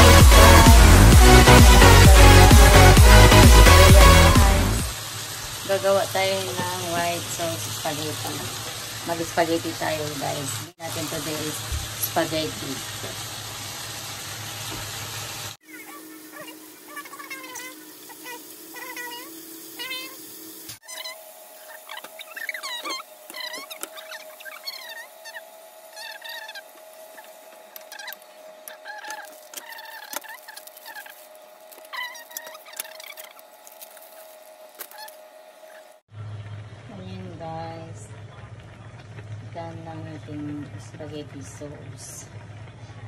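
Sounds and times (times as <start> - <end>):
water boiling hiss: 4.9 - 36.0
short high gliding calls: 20.8 - 35.9.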